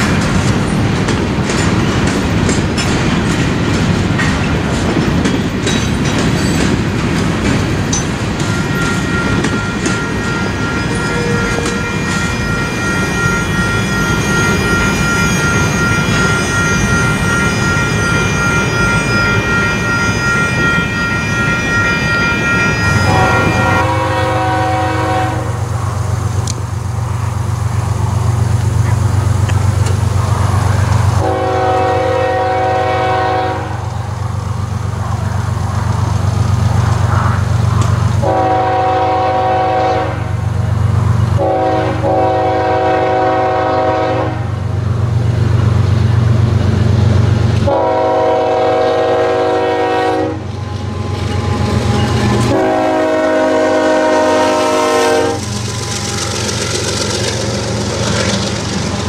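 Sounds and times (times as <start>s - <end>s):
locomotive rumbling past: 0.0s - 59.0s
locomotive air horn blasts: 8.7s - 12.5s, 23.0s - 25.7s, 31.2s - 33.8s, 38.2s - 40.3s, 41.4s - 44.5s, 47.6s - 50.5s, 52.4s - 56.3s.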